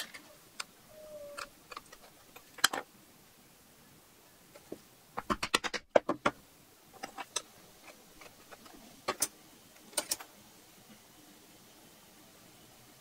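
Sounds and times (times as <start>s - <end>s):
hand tools clicking on hard board: 4.6s - 6.4s.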